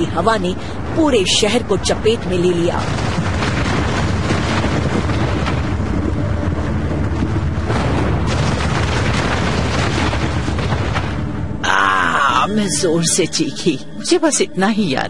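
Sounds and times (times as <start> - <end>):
explosion deep rumble: 2.5 - 12.8.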